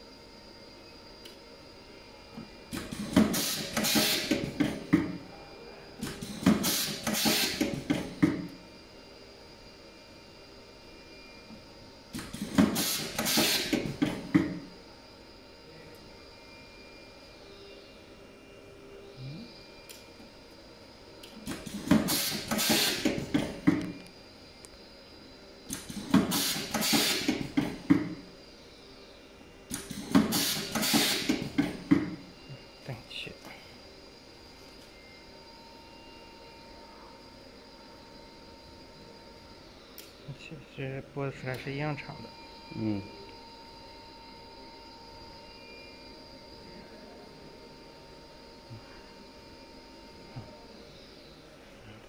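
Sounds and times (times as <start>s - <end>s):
stripping machine whirring and clicking: 2.3s - 5.3s, 6.0s - 8.6s, 11.4s - 14.7s, 21.2s - 24.8s, 25.6s - 28.3s, 29.6s - 32.3s.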